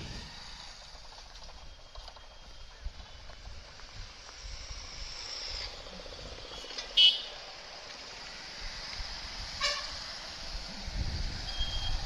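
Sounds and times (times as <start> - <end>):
motorcycle engine and road noise: 0.0 - 12.0
vehicle horn beep: 6.9 - 7.4, 9.6 - 10.0, 11.5 - 12.0.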